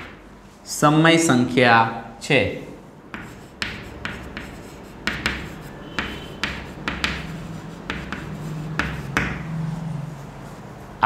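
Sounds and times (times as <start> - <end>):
chalk writing on chalkboard: 3.1 - 11.0.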